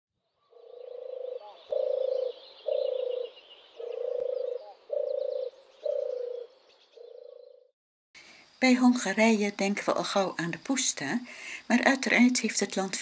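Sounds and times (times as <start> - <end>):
faint bird chirps: 0.2 - 8.6
frog croaking: 0.5 - 7.7.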